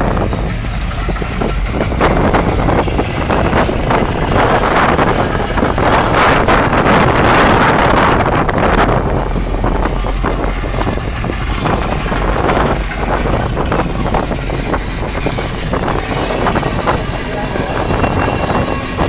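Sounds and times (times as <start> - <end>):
boat engine rumble: 0.0 - 19.0
water washing: 0.0 - 19.0
wind noise on microphone: 0.0 - 19.0.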